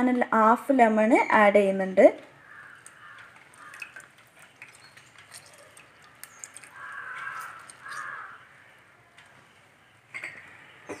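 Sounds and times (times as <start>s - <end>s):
faint bird calls: 4.7s - 9.2s.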